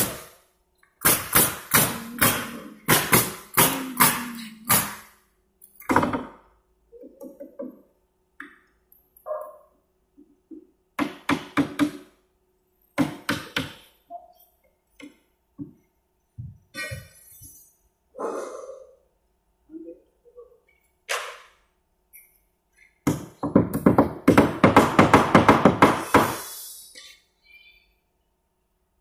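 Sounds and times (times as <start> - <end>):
hammer knocking nails into wood: 1.0 - 5.0, 11.0 - 12.1, 13.0 - 13.9, 23.0 - 26.4.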